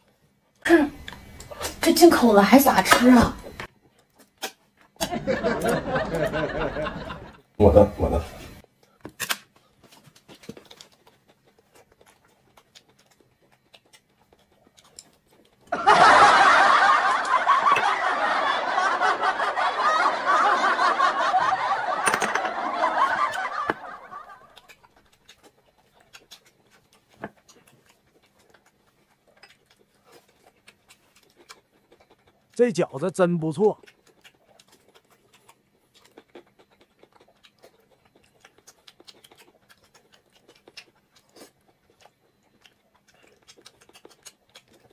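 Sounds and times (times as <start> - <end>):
dubbed-in laughter: 5.0 - 8.2, 15.7 - 24.6.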